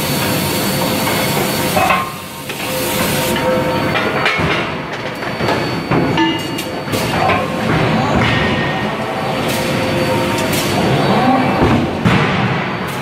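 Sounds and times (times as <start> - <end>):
forging press hiss: 0.0 - 3.6.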